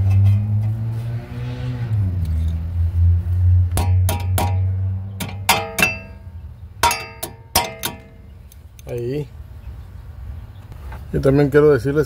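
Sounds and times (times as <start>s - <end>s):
metal tool tapping brake caliper: 3.7s - 8.3s.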